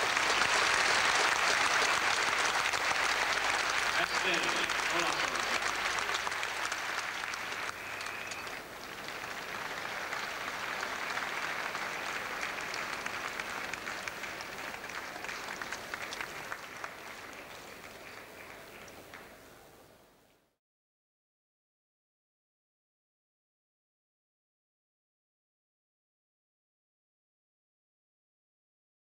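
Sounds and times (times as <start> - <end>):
audience applauding: 0.0 - 19.5.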